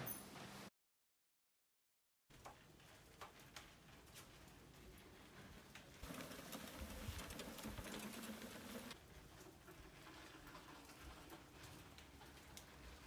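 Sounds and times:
faint lawnmower engine humming: 6.0 - 9.7.

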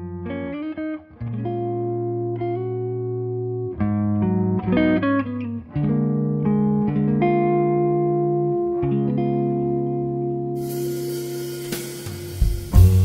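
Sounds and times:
instrumental guitar music: 0.0 - 13.0.

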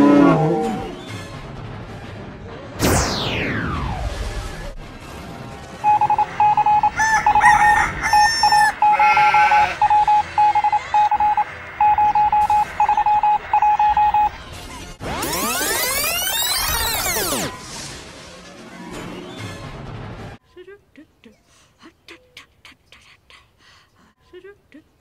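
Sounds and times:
short electronic beeps: 5.8 - 7.5, 8.5 - 14.4.

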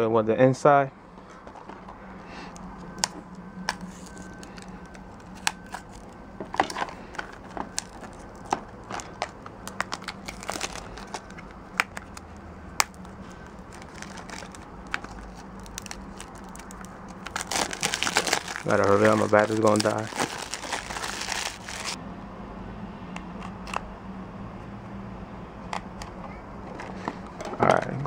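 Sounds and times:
low steady hum: 0.0 - 28.0
plastic crinkling and clicking: 1.2 - 22.0
knife cutting plastic wrap: 13.8 - 22.0.

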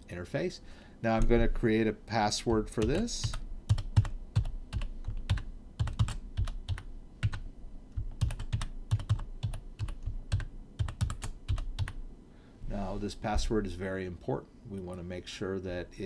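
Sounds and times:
computer keyboard typing: 2.5 - 12.0.

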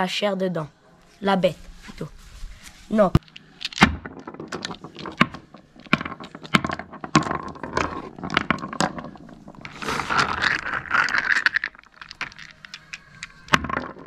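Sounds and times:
clam shells clicking on wood: 3.2 - 14.0.

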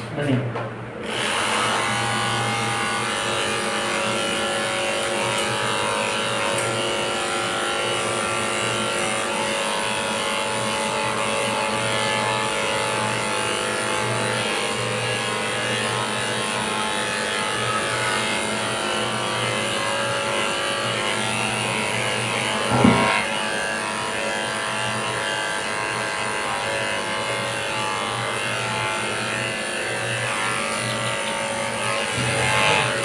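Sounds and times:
electric clippers buzzing: 1.0 - 33.0
short thump: 22.7 - 23.2.

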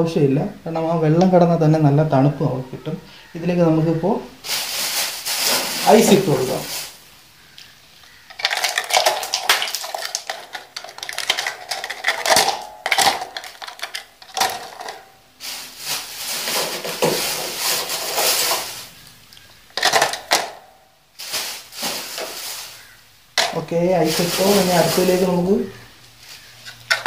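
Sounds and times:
ice rattling in plastic bottle: 4.5 - 7.0, 8.1 - 19.0, 19.7 - 20.6, 21.2 - 25.4.

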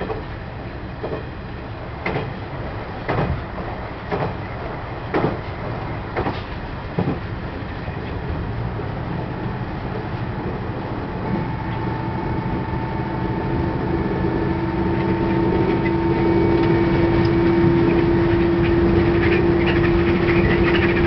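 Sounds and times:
railcar running rumble: 0.0 - 21.0
wheels clacking over rail joints: 2.0 - 8.3, 13.5 - 21.0.

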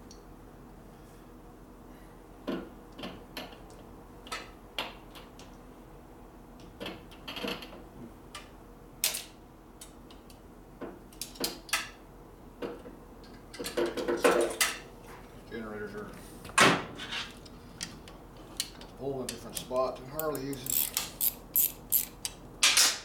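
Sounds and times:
metallic tool clicks and clinks: 19.6 - 22.4.

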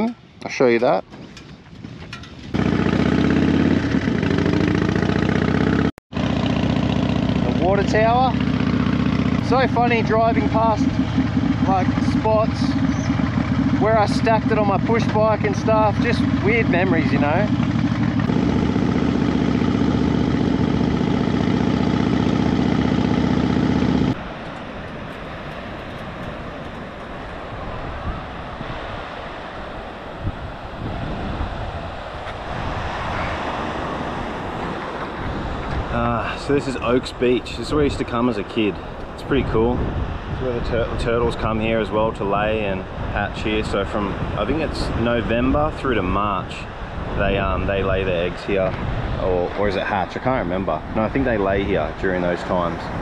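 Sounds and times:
motorcycle engine running: 1.8 - 27.4
surf: 7.2 - 23.1, 23.7 - 53.0
wind hiss: 24.2 - 44.8.

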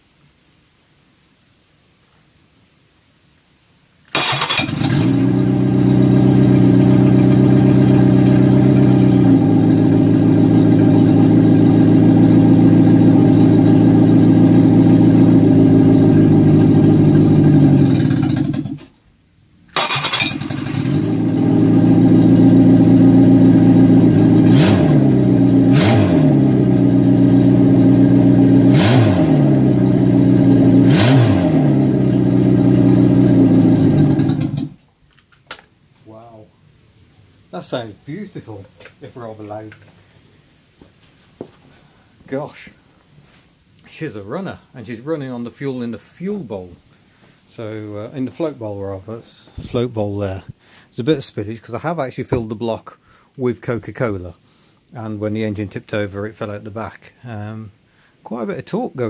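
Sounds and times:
sharp cracks: 4.1 - 5.7, 19.7 - 21.1
engine running loudly: 4.4 - 18.8, 19.8 - 34.7.

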